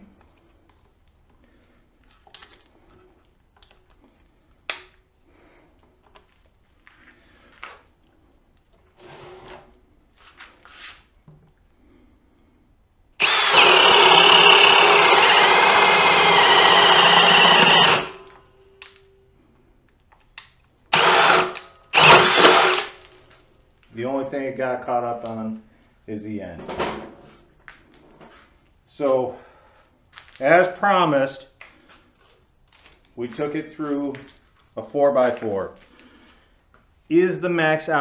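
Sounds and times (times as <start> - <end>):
drill motor boring through wood: 13.2 - 18.4, 20.9 - 23.0.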